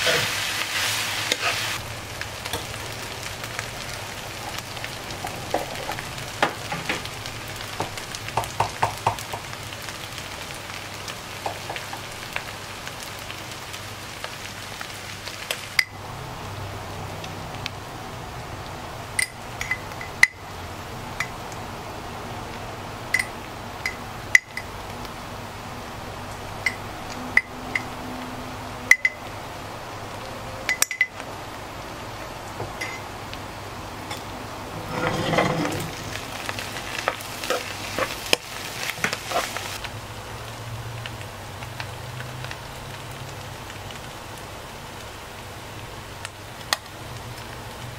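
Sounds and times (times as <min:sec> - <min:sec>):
spatula scraping a pan: 0:00.0 - 0:01.8, 0:34.7 - 0:39.8
meat sizzling in a pan: 0:00.0 - 0:17.8, 0:32.8 - 0:47.9.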